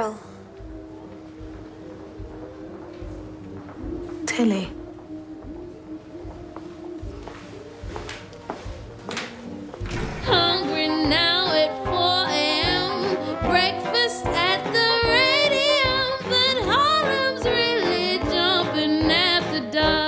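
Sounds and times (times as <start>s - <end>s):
woman singing jazz with vibrato: 10.1s - 20.0s.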